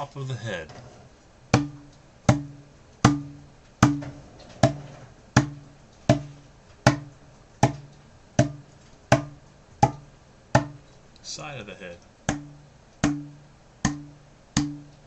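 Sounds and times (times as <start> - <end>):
plastic bottle knocking on head: 3.1 - 4.8, 10.6 - 10.8.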